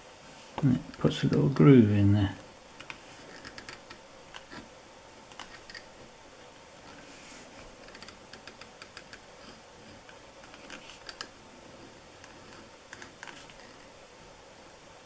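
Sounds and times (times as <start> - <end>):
tool scratching leather: 12.2 - 13.9.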